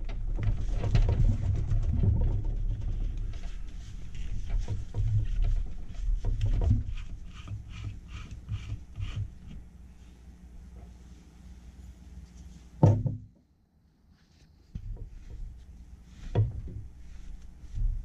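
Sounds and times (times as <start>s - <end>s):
handling bumps and knocks: 12.8s - 13.3s, 14.8s - 18.0s.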